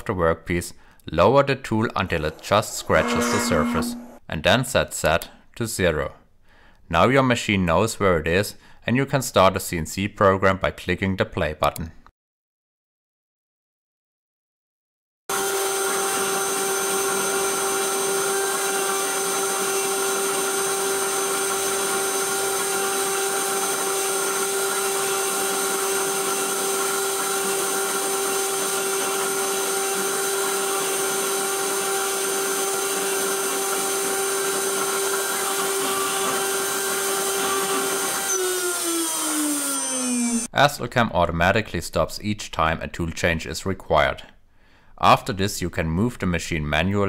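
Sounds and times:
router spindle high whine: 2.0s - 4.2s, 15.3s - 40.5s.

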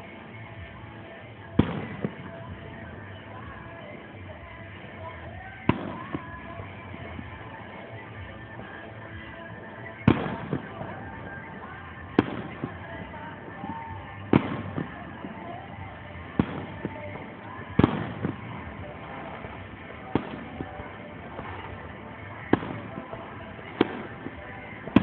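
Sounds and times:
firework shells booming: 1.4s - 8.0s, 9.3s - 25.0s.

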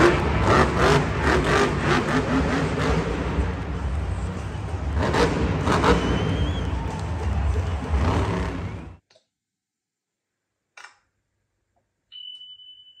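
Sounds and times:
monster truck engine running: 0.0s - 9.0s
high chime tone: 12.1s - 13.0s.

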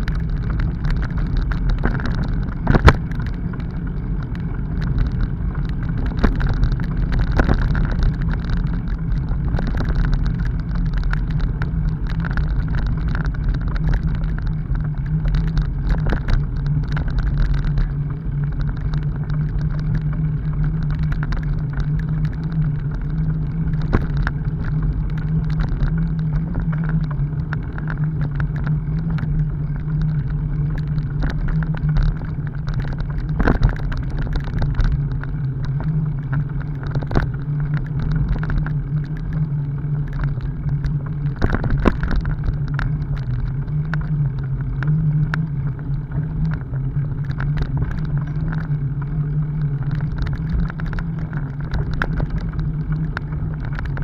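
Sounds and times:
bicycle tyres rumbling on dirt: 0.0s - 54.0s.

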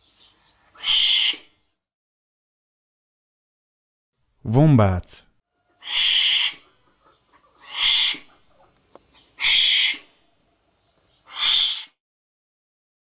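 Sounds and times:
wombat hissing: 0.8s - 1.5s, 5.8s - 6.7s, 7.6s - 8.4s, 9.4s - 10.1s, 11.3s - 12.0s.

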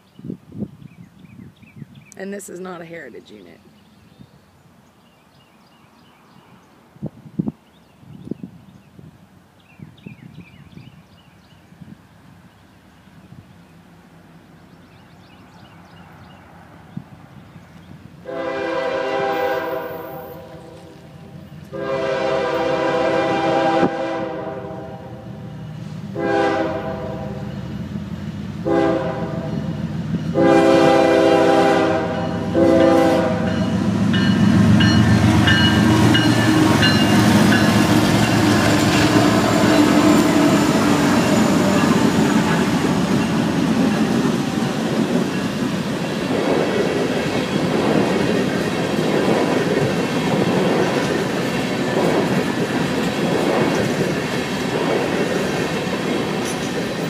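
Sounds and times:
locomotive engine rumbling: 12.8s - 57.0s
locomotive air horn blasts: 18.2s - 21.1s, 21.7s - 25.2s, 26.1s - 27.5s, 28.6s - 29.7s, 30.3s - 33.8s
train cars clickety-clack: 29.5s - 57.0s.

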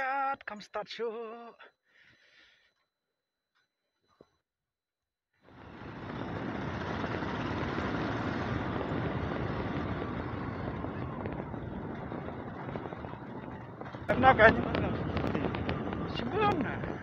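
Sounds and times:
motorcycle engine running: 5.5s - 17.0s
wind on microphone: 5.6s - 17.0s.

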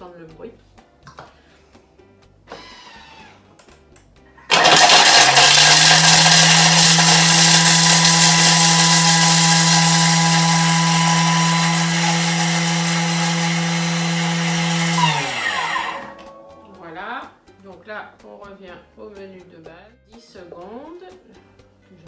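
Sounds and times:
food processor motor whine: 4.5s - 16.3s.

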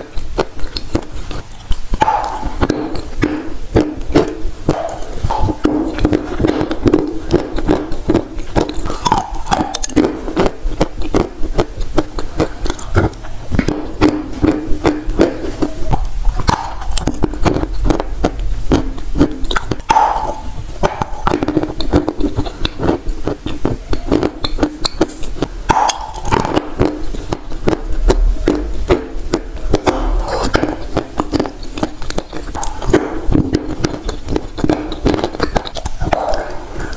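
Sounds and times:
chewing crunchy clay: 0.0s - 36.9s.

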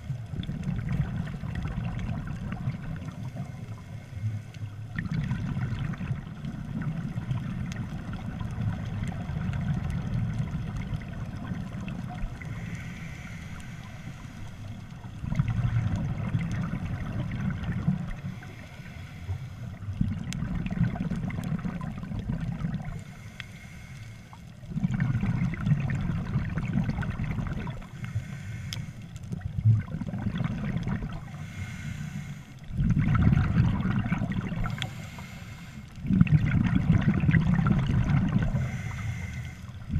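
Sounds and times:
scuba regulator breathing bubbles: 10.1s - 39.9s.

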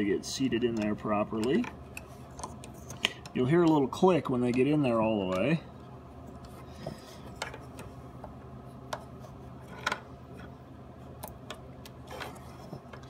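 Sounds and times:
connector pins clicking into housing: 0.6s - 5.5s.

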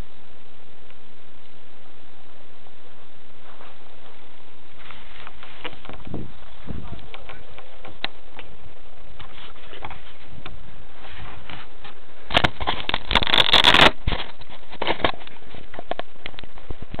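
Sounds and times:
steady hiss: 0.0s - 17.0s
rustling scrape: 3.4s - 8.0s, 9.1s - 16.0s
rubbing and clicks on microphone: 9.2s - 17.0s.

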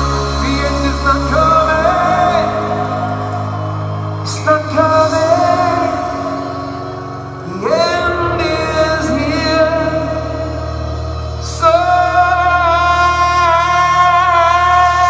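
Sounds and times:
low bass drone: 0.0s - 15.0s
man singing long held notes: 0.0s - 15.0s.

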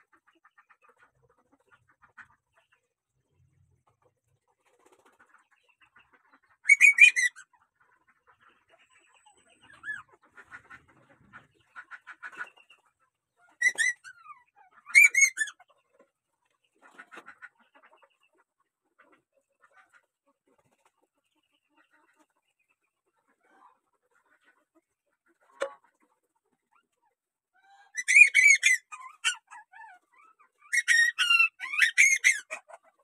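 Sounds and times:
puppy yelping: 13.6s - 14.2s, 27.9s - 32.7s.

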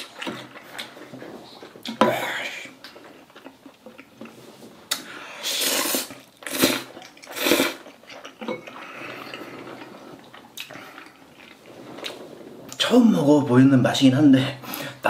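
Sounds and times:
person slurping noodles: 4.3s - 12.9s.

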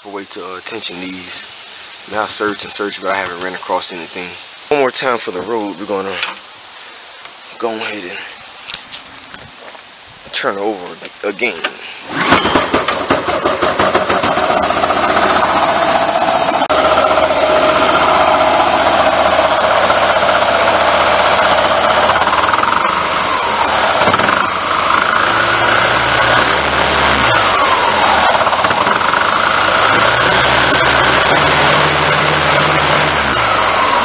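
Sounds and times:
small gasoline engine running: 12.0s - 34.0s.

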